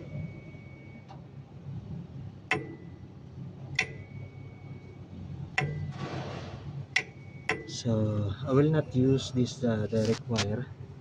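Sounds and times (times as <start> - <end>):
low steady hum: 0.0 - 11.0
sharp ticks with high ringing: 3.8 - 4.1.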